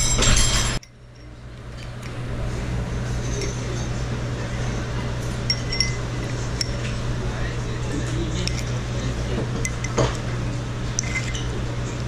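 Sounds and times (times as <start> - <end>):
noisy high ringing tones: 0.0 - 1.5, 3.0 - 6.8.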